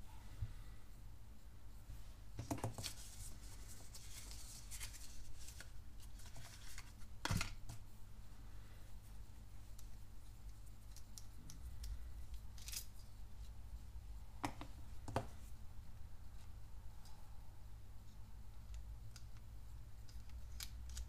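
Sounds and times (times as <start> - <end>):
low steady hum: 0.0 - 21.0
plastic pen parts clicking: 18.6 - 21.0.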